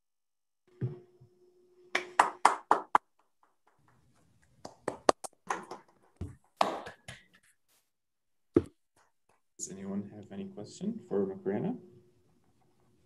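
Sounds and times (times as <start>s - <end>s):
people clapping: 1.9s - 7.4s.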